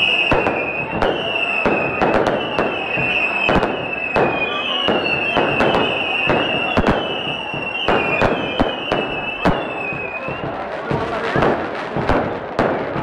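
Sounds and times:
steady high whistle: 0.0 - 10.6
fireworks bursting with bangs: 0.0 - 13.0.

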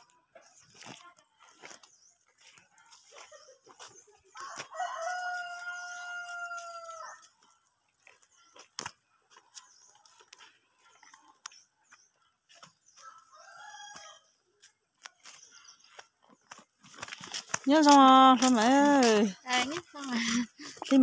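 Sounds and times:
rooster crowing: 4.4 - 7.2, 13.0 - 14.3.

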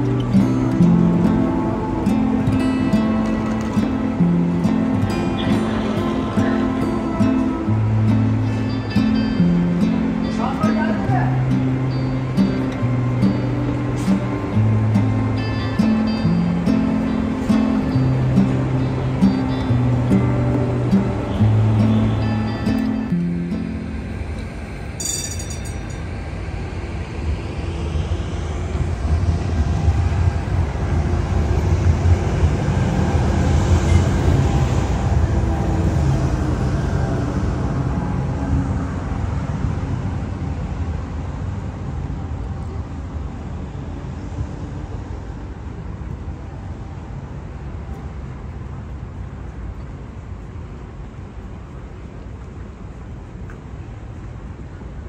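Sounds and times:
tram rumble on tracks: 0.0 - 55.0.

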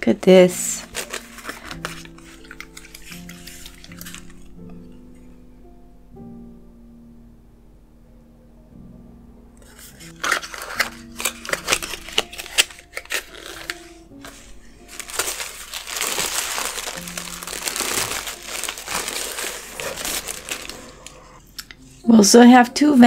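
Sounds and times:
soft background music: 0.0 - 23.0
tissue paper crinkling: 0.5 - 4.5, 9.6 - 21.4.

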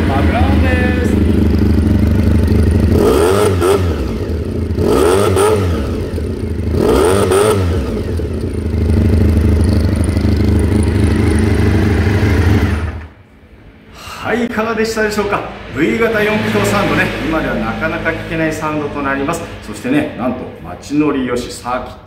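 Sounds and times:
motorcycle engine revving and idling: 0.0 - 13.2.

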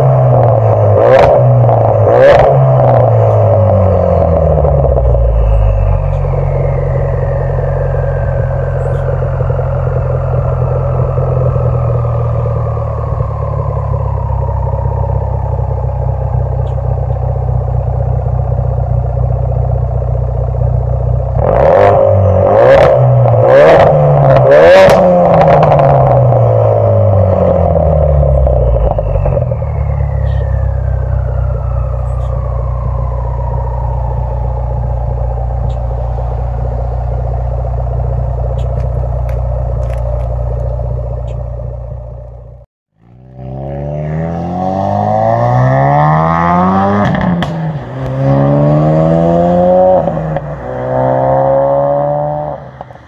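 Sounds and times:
car engine idling: 0.0 - 43.1, 46.2 - 53.0
car engine revving: 0.0 - 53.0
exhaust pops and crackles: 3.2 - 21.5, 27.6 - 42.6
thin turbo whistle: 5.1 - 9.1, 28.5 - 31.1.

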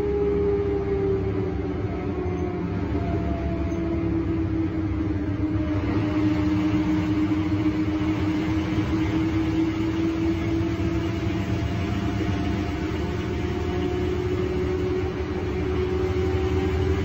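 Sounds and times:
bus diesel engine droning: 0.0 - 17.0.

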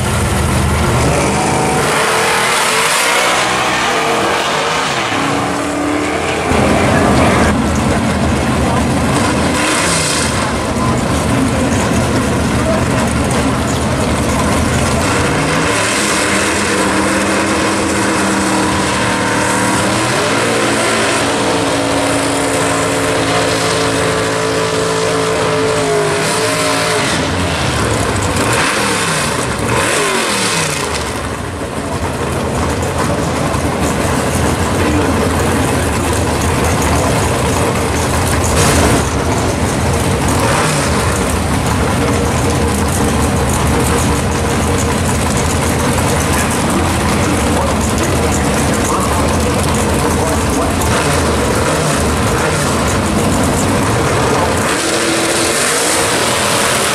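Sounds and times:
car engine revving: 0.0 - 56.9
tyre burnout: 0.0 - 56.9.

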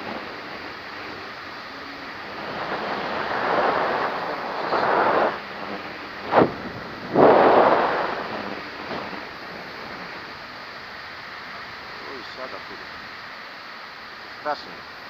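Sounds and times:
wind buffeting microphone: 0.0 - 10.5
sharp pop: 6.3 - 7.7.

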